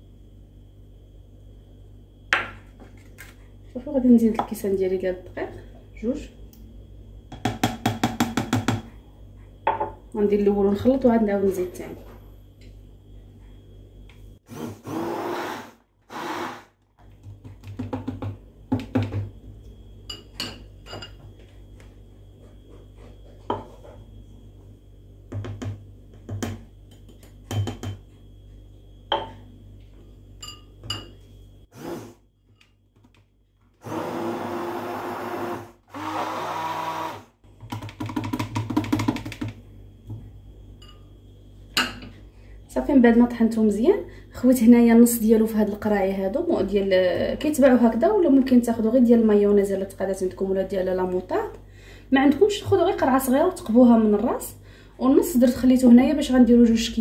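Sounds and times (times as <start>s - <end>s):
stick blender running: 14.4s - 16.9s, 31.7s - 32.2s, 33.8s - 37.4s.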